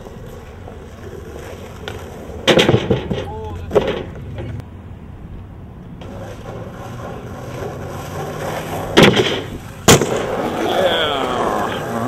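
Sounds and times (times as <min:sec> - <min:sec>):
skateboard deck clacking on ground: 0:00.0 - 0:04.6, 0:06.0 - 0:12.0
skateboard wheels rolling on asphalt: 0:00.0 - 0:12.0.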